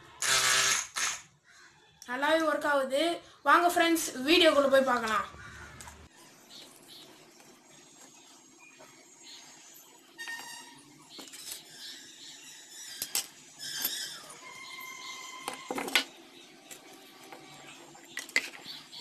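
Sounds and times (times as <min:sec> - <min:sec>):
small parts knocking on wooden table: 0:15.4 - 0:16.1.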